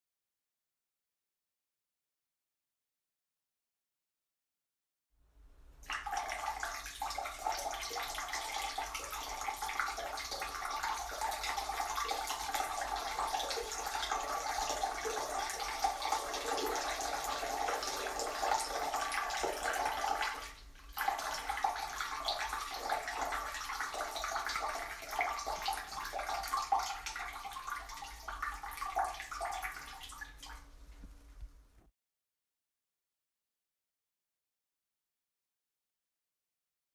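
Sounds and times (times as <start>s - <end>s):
urine splashing into toilet water: 5.8s - 30.7s.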